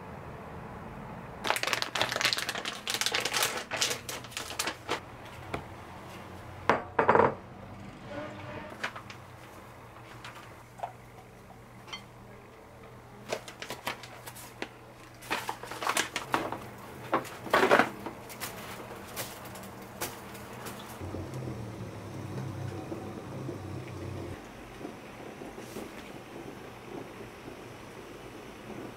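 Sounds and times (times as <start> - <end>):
plastic bag crinkling: 1.4 - 5.0, 13.2 - 21.0.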